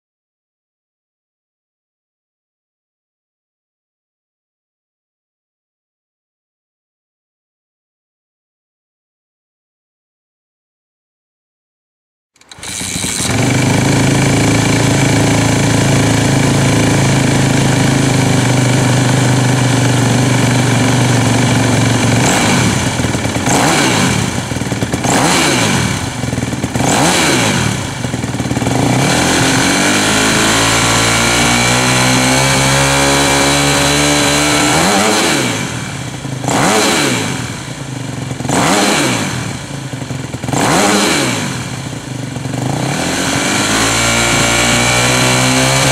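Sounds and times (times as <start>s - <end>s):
motorcycle engine idling and revving: 12.4s - 45.9s.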